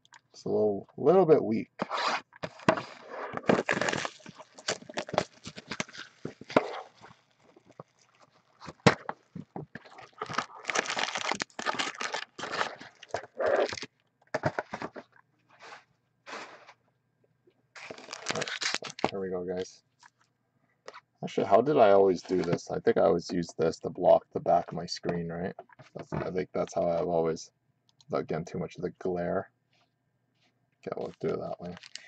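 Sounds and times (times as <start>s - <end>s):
packaging rustling and tearing: 1.8s - 15.0s, 17.8s - 19.2s, 31.2s - 32.0s.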